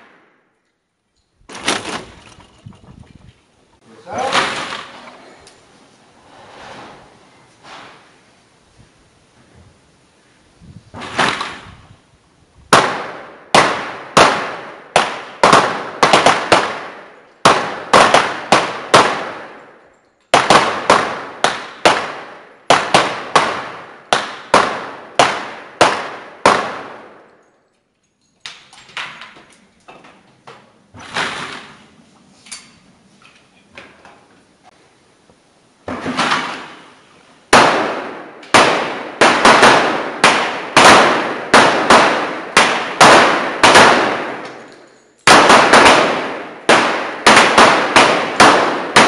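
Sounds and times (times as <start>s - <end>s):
pistol gunshots echoing: 12.7s - 27.4s, 37.5s - 49.0s.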